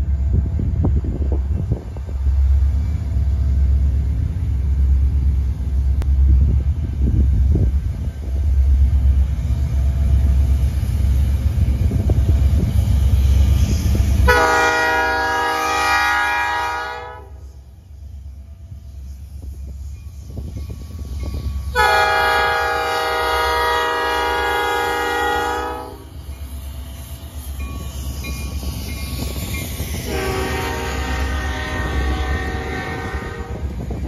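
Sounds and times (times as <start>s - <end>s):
diesel freight train rumble: 0.0s - 34.0s
locomotive air horn blast: 14.2s - 17.5s, 21.7s - 26.1s, 30.0s - 33.8s.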